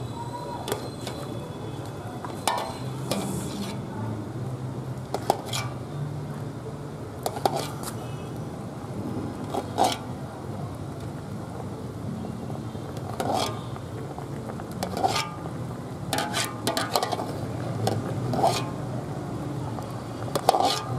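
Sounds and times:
metal ladle clinking and scraping pot: 2.3 - 3.8, 5.2 - 5.8, 13.1 - 13.7, 14.8 - 15.4, 16.1 - 18.8, 20.3 - 20.9.

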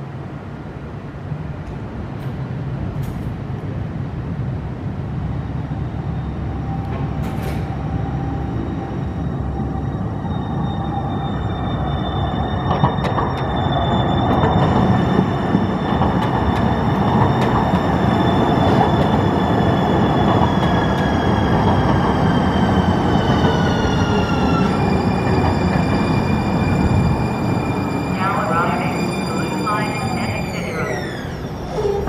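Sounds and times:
high train whine: 0.0 - 32.0
train wheels rumbling on rails: 6.6 - 32.0.

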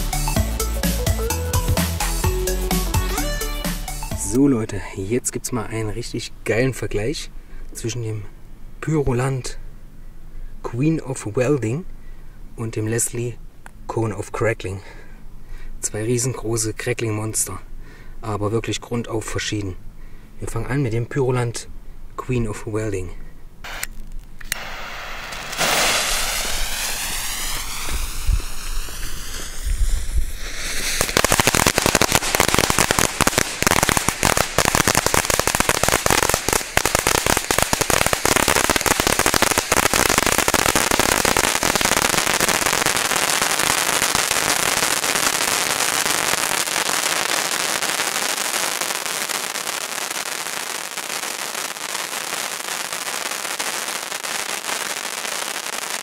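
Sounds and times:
fountain firework hissing and crackling: 23.7 - 56.0.

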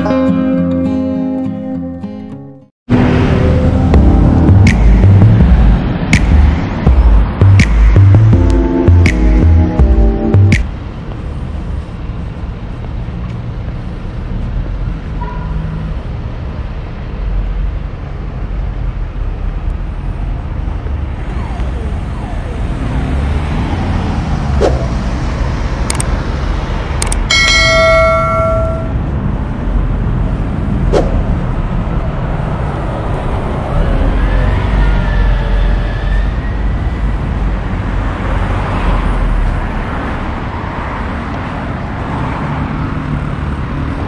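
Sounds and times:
street traffic rumble: 2.9 - 44.0
sharp clicks: 25.9 - 26.1, 27.0 - 27.3
bell-like chime: 27.3 - 29.0.

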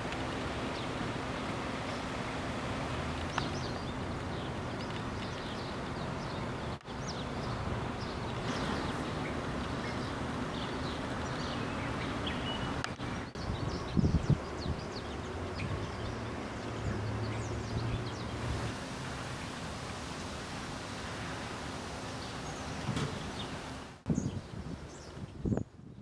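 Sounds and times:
steady background hum: 0.0 - 24.0
bird chirps: 3.2 - 18.4.

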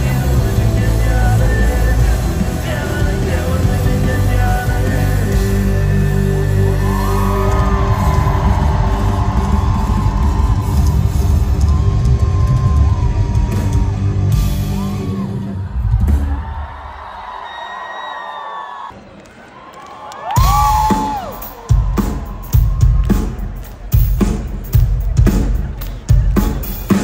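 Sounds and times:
live rock band playing loudly: 0.0 - 16.2, 20.4 - 27.0
crowd yelling and whooping: 4.4 - 24.0.

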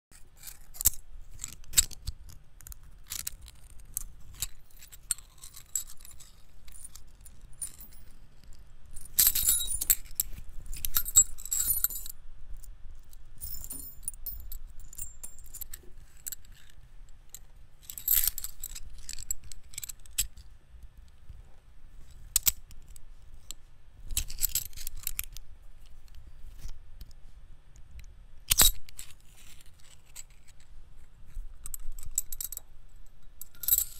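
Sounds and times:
metal wire jingling and scraping: 0.1 - 12.1, 13.4 - 16.8, 17.8 - 20.2, 31.6 - 33.9.

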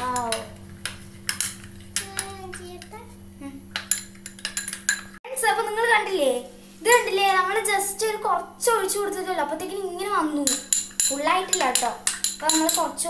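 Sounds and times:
spoon clinking against bowl: 3.8 - 5.2, 10.5 - 12.9.

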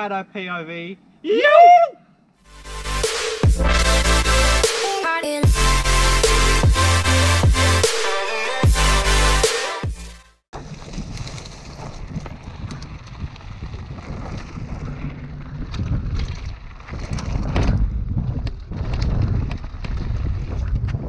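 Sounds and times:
bike rattling and knocking: 10.6 - 21.0
wind rumble on microphone: 10.6 - 21.0.

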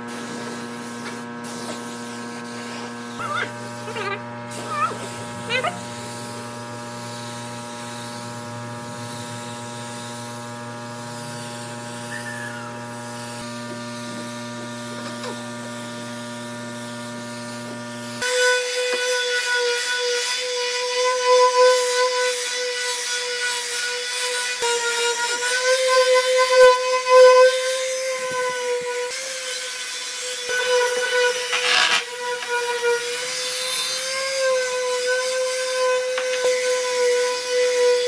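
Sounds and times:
electric power tool motor humming: 0.0 - 38.0
high-pitched motor whine: 2.8 - 15.8.

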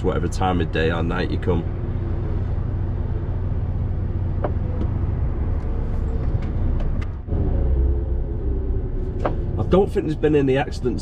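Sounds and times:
lorry diesel engine rumble: 0.0 - 11.0
road noise: 0.0 - 11.0.

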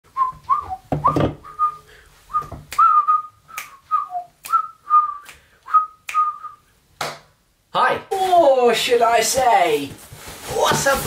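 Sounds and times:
person whistling a tune: 0.1 - 6.7
finger snaps: 3.5 - 3.8, 4.4 - 4.6, 5.2 - 6.4.

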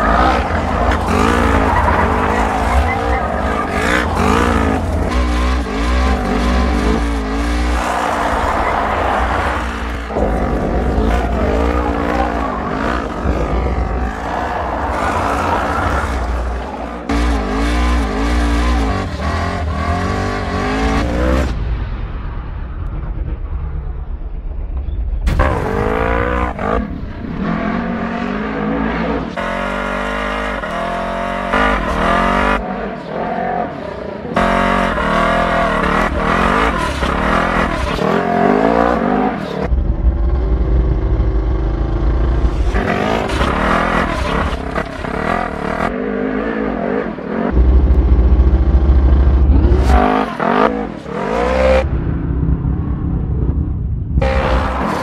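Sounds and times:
engine revving hard: 0.0 - 21.5, 42.1 - 46.7.

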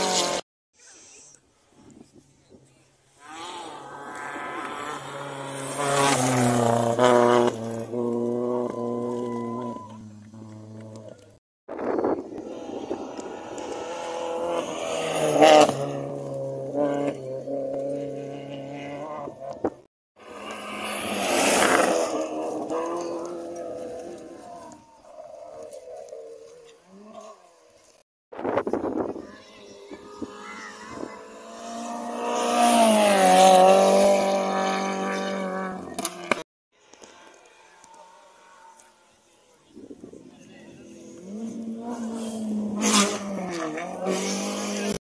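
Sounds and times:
rally car engine at high revs: 0.0 - 0.4, 3.2 - 11.3, 12.3 - 25.9, 29.7 - 36.4, 40.9 - 45.0.

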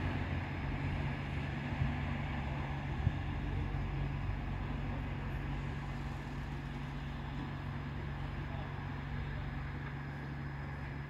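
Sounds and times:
distant diesel train engine drone: 0.0 - 11.0.

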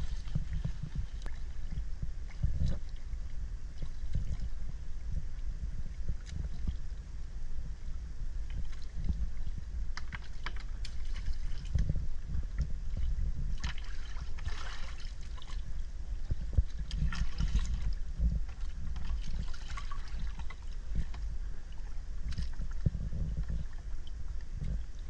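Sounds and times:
low rumble: 0.0 - 25.0
water lapping and splashing: 0.0 - 25.0.

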